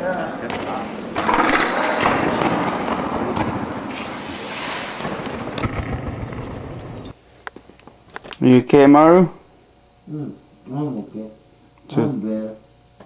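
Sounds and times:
skateboard wheels rolling on concrete: 0.0 - 7.1.

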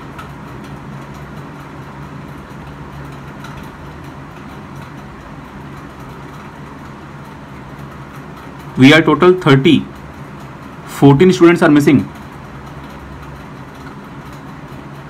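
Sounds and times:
low background hum: 0.0 - 15.0.

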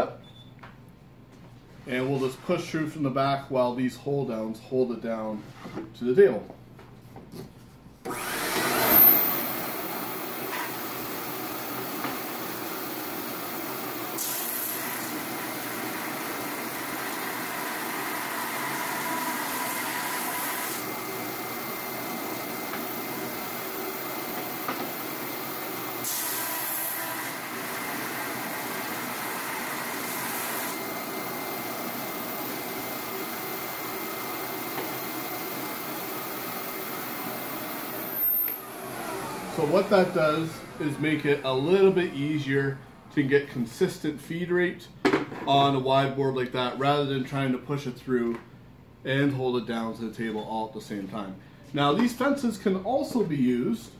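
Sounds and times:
drum sander running: 8.1 - 42.3.

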